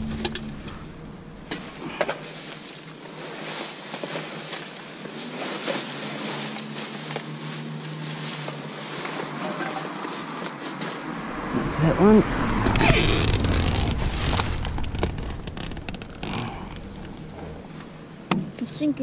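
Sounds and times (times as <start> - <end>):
plastic bags and bottles rustling: 1.5 - 11.2.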